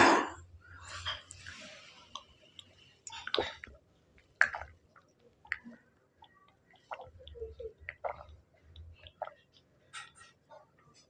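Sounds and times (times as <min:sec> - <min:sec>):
man gulping from bottle: 0:03.1 - 0:03.8.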